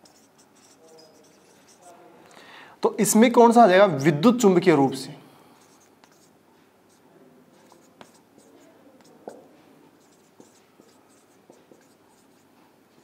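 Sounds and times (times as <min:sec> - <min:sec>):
marker writing on whiteboard: 0:00.0 - 0:02.0, 0:05.6 - 0:13.0
marker tip tapping board: 0:09.0 - 0:09.5.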